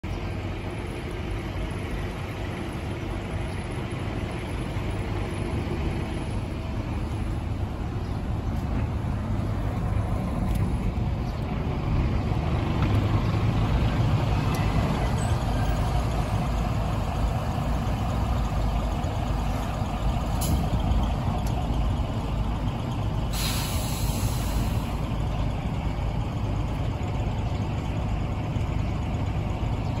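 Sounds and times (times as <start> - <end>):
bus engine rumbling: 0.0 - 30.0
compressed-air hiss: 23.3 - 25.0.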